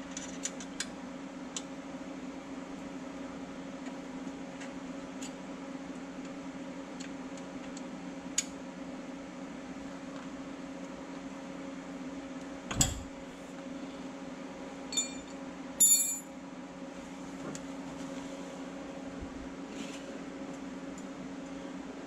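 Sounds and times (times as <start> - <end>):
steady low hum: 0.0 - 22.0
metallic tool clinks: 14.9 - 16.3.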